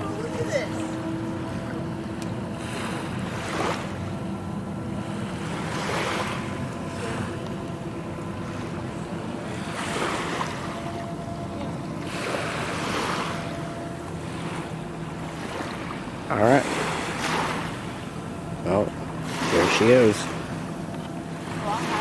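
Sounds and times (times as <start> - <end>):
distant ferry engine drone: 0.0 - 22.0
small waves washing on beach: 2.6 - 4.0, 5.1 - 7.3, 14.2 - 18.1, 18.8 - 20.5.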